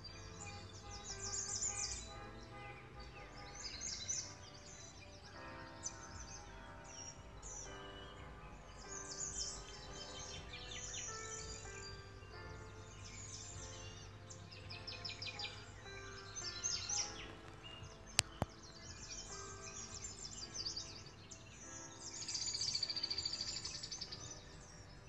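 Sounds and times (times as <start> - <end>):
loud fast bird trill: 0.0 - 8.2
birds chirping: 0.0 - 25.0
soft sustained music: 0.0 - 25.0.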